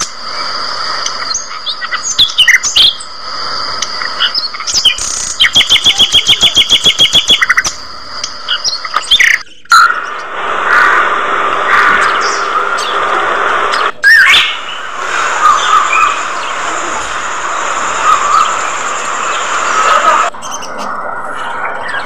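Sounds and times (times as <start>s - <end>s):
budgerigars chirping and chattering: 4.0s - 11.0s, 14.1s - 16.8s, 17.9s - 22.0s.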